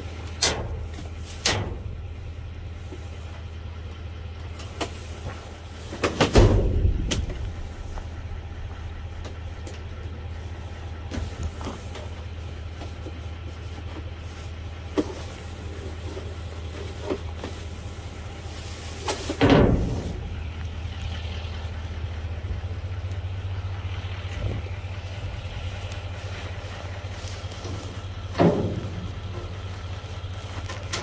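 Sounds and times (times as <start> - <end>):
low mechanical hum: 0.0 - 31.0
loud thump: 6.2 - 9.4, 19.4 - 20.3.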